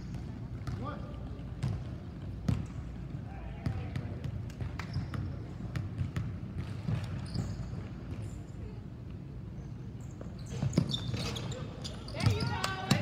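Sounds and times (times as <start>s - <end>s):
basketball bouncing on hardwood floor: 1.6s - 2.7s
shoe squeaks: 4.8s - 5.6s, 6.8s - 8.8s, 9.6s - 13.0s.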